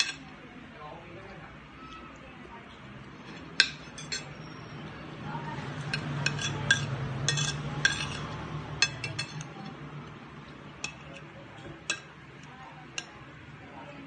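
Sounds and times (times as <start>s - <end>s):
cutlery clinking on a plate: 0.0s - 0.3s, 3.2s - 4.4s, 5.8s - 9.8s, 10.8s - 12.2s.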